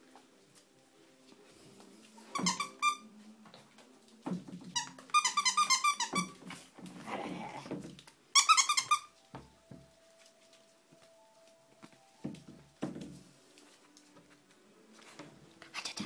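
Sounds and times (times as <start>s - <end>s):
thumps and scuffling on tile floor: 3.4s - 11.2s, 11.8s - 15.4s.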